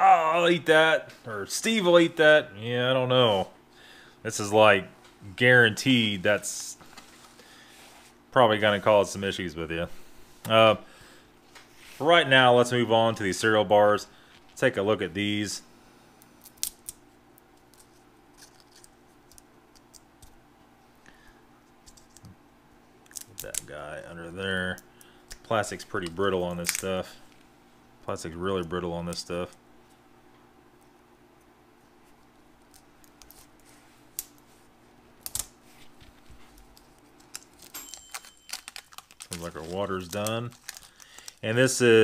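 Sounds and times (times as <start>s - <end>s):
low steady hum: 0.0s - 42.0s
plastic packaging crackling: 36.5s - 41.9s.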